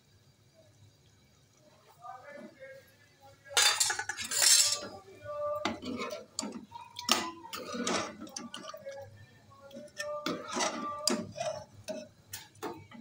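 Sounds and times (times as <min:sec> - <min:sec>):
metal spoon scraping a pot: 0:03.6 - 0:09.0, 0:09.6 - 0:13.0.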